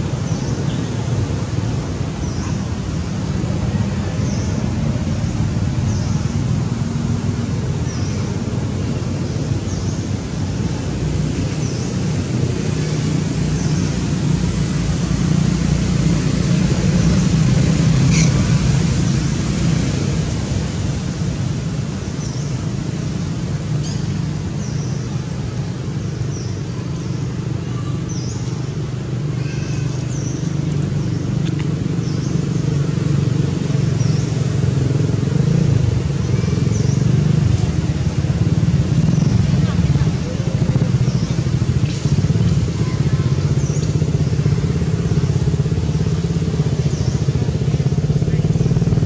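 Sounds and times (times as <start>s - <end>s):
low outdoor rumble: 0.0s - 49.0s.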